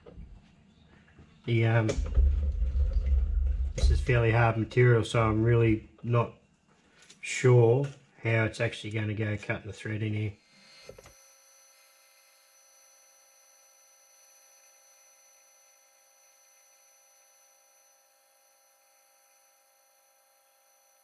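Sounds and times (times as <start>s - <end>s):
metal lathe whine: 10.4s - 21.0s.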